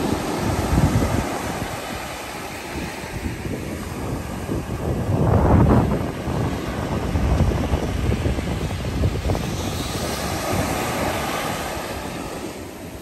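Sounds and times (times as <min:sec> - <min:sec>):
small waves breaking on beach: 0:00.0 - 0:13.0
wind buffeting microphone: 0:00.0 - 0:13.0.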